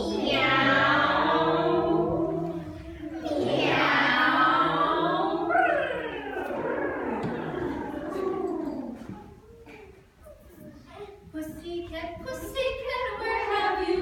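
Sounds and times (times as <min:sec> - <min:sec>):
group singing without instruments: 0:00.0 - 0:09.0.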